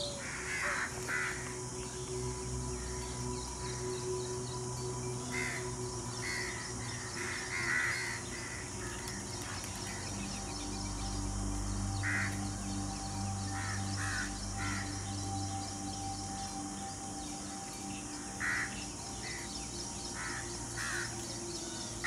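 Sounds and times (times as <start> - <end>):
harsh cawing bird calls: 0.0 - 2.2, 5.3 - 10.8, 11.4 - 15.5, 17.9 - 19.5, 20.1 - 22.0
low music drone: 0.0 - 22.0.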